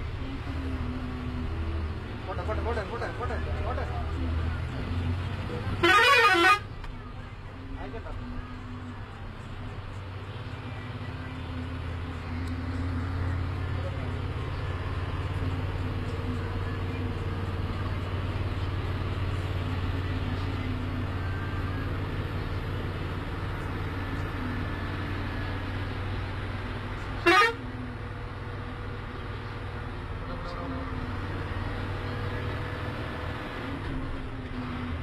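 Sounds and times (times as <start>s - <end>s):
bus engine running: 0.0s - 35.0s
air horn blast: 5.8s - 6.6s, 27.2s - 27.6s.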